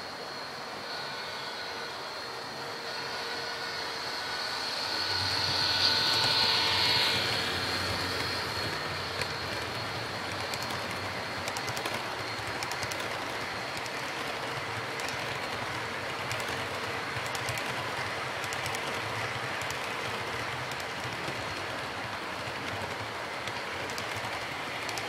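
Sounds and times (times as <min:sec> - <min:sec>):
model train motor whine: 0:00.0 - 0:25.0
wheels clicking over rail joints: 0:05.3 - 0:25.0.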